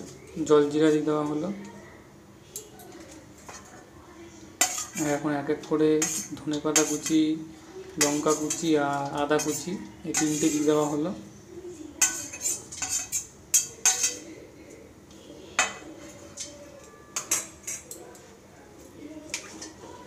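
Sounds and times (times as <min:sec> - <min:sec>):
metal spoon scraping plate: 0:04.6 - 0:05.2, 0:05.9 - 0:07.2, 0:08.0 - 0:11.0, 0:12.0 - 0:14.2, 0:15.6 - 0:18.0.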